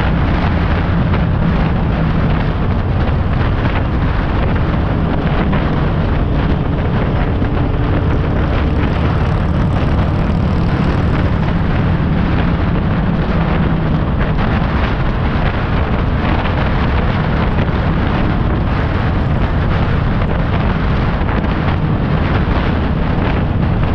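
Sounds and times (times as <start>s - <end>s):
motorcycle engine running: 0.0s - 23.9s
tyre and road noise: 0.0s - 23.9s
wind rush on microphone: 0.0s - 23.9s.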